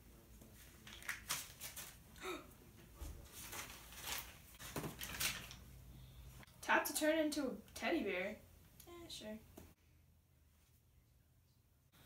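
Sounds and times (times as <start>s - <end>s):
paper bills rustling: 0.6s - 2.0s, 3.3s - 5.7s.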